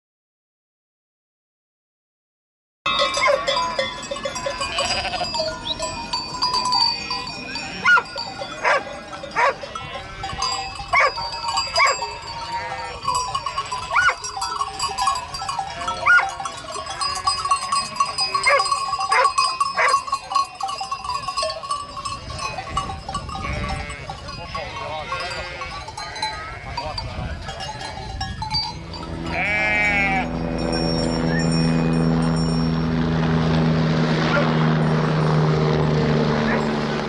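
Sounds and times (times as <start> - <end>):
sheep bells clinking: 2.9 - 33.3
sheep bleating: 4.6 - 5.7, 9.8 - 10.7, 11.8 - 14.1, 15.5 - 16.3, 23.4 - 26.8, 29.2 - 30.6.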